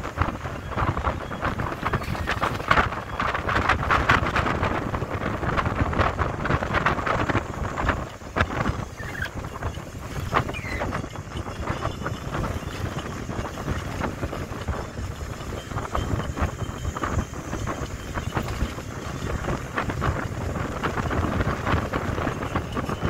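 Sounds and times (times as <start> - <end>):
bus engine and road noise: 0.0 - 23.0
wind rushing over microphone: 0.0 - 23.0.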